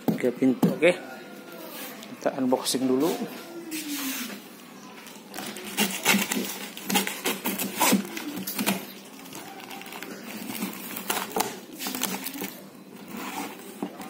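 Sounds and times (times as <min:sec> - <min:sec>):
knife cutting packing tape: 0:05.4 - 0:14.0.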